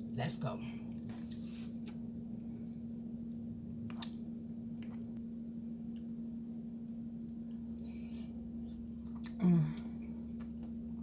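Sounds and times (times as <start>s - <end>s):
steady low hum: 0.0s - 11.0s
wet chewing mouth sounds: 3.8s - 5.2s, 6.8s - 10.9s.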